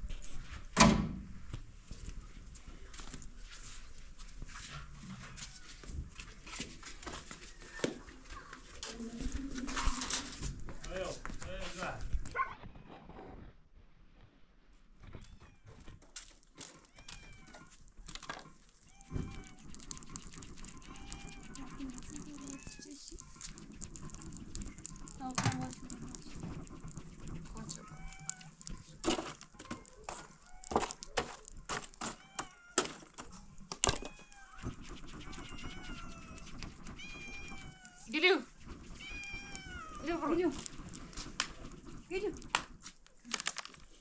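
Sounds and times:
clicks and rustling: 0:15.0 - 0:38.2, 0:38.8 - 0:44.0
high-pitched animal cries: 0:18.9 - 0:25.2, 0:27.6 - 0:28.7, 0:34.0 - 0:38.1, 0:38.9 - 0:40.5.

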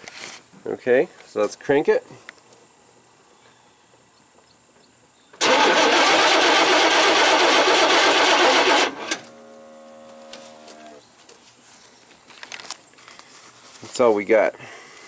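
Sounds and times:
engine cranking on starter: 0:05.4 - 0:11.0.

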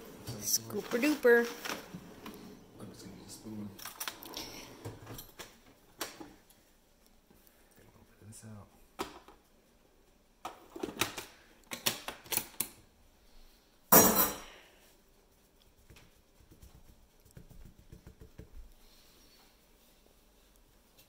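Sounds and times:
hands patting flour on countertop: 0:14.9 - 0:19.6.

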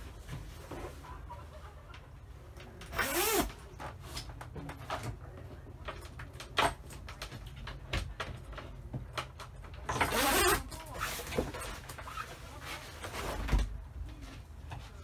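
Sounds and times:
zipper rasping open: 0:03.0 - 0:03.5.

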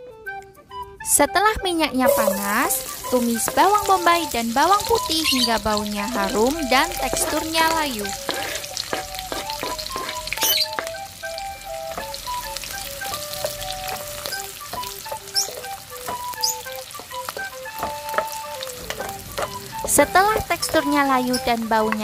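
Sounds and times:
simple background melody: 0:00.0 - 0:22.0
onion and garlic sizzling in oil: 0:01.6 - 0:22.0
spatula scraping a pan: 0:04.9 - 0:11.0, 0:11.8 - 0:22.0.

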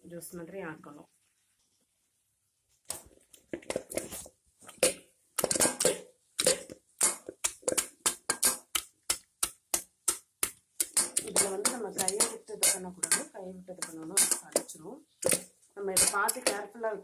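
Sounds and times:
wooden masher pounding tomatoes: 0:04.8 - 0:16.8.

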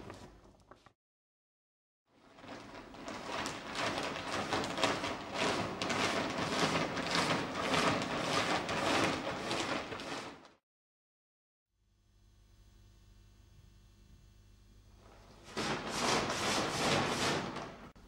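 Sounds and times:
plastic bag rustling and crackling: 0:02.2 - 0:10.6, 0:15.0 - 0:17.9.

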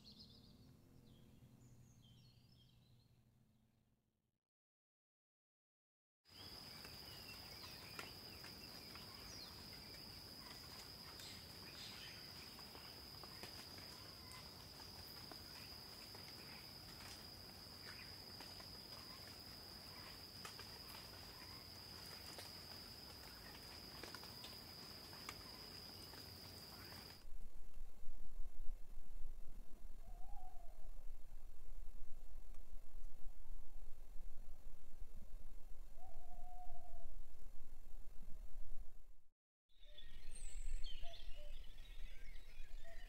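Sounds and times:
high-pitched insect trill: 0:06.4 - 0:27.2.

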